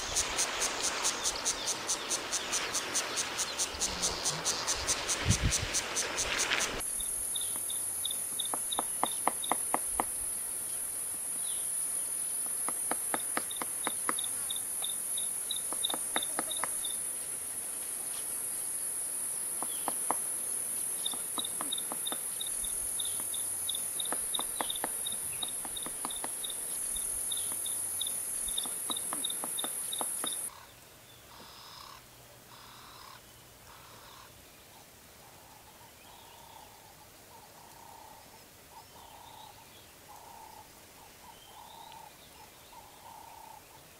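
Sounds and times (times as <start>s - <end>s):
water splashing: 0.0s - 10.2s
high insect drone: 0.0s - 30.6s
faint bush sounds: 0.0s - 43.9s
woodpecker tapping on tree trunk: 7.4s - 10.2s, 12.4s - 16.9s, 19.6s - 20.3s, 21.0s - 22.4s, 23.0s - 26.6s, 27.3s - 30.5s.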